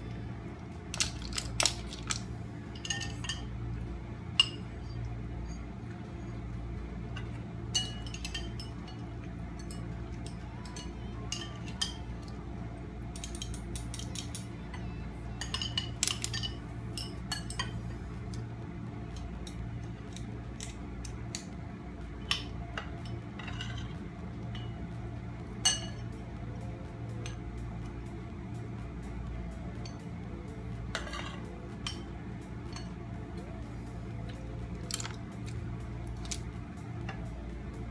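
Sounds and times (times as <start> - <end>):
steady low hum: 0.0 - 37.9
spoons clinking on ceramic bowls: 0.9 - 3.5, 4.4 - 5.0, 7.2 - 12.1, 15.4 - 17.8.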